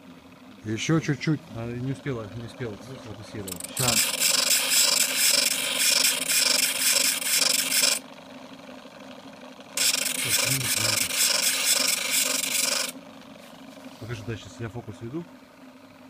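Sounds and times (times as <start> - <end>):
motor humming: 0.0 - 16.0
drill bit grinding rasp: 3.5 - 8.0, 9.8 - 13.0.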